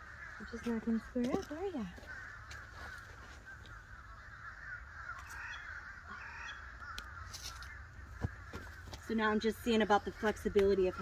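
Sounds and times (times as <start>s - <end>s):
many birds chirping: 0.0s - 11.0s.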